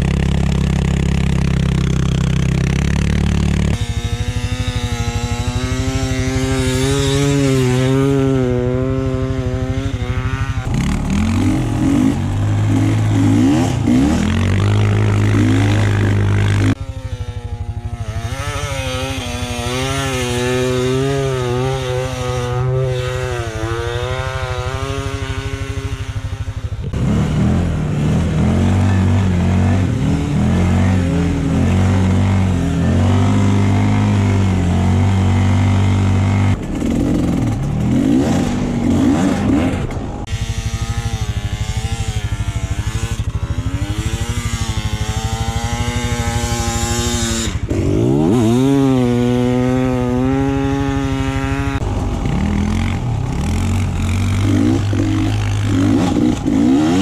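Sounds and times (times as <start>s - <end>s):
atv engine revving: 0.0s - 57.0s
dirt bike engine revving: 0.0s - 57.0s.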